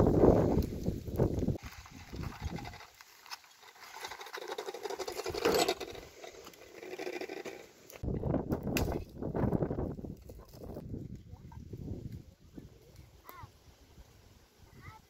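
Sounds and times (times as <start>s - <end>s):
wheelbarrow wheel crunching: 1.6s - 8.0s.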